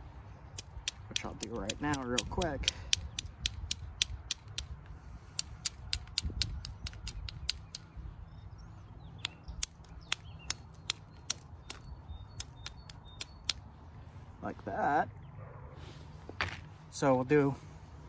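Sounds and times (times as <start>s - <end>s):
low wind rumble: 0.0s - 18.0s
flint knapping clicks: 0.5s - 7.9s, 9.2s - 13.6s.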